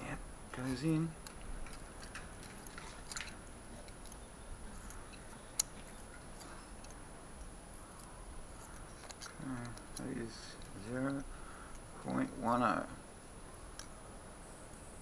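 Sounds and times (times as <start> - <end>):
feeler gauge clicking and scraping: 0.6 - 12.1.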